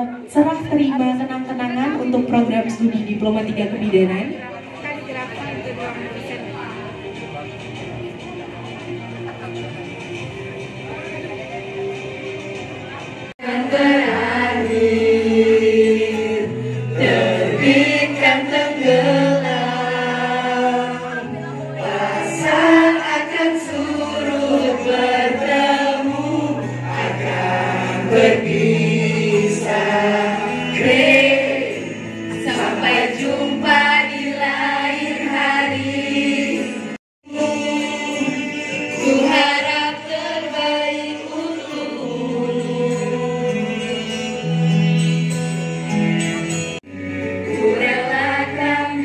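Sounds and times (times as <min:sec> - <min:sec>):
group of voices singing: 0:13.4 - 0:44.7, 0:47.2 - 0:49.0.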